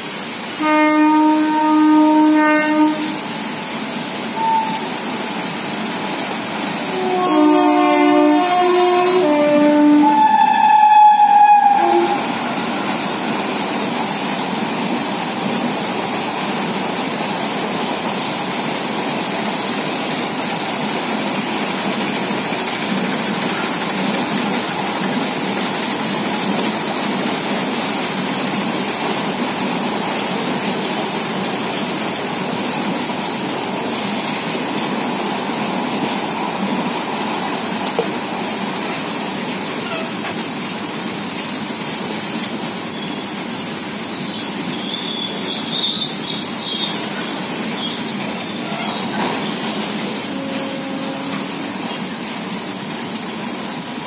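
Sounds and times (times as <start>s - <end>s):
freight wagons rolling on rails: 14.6s - 54.0s.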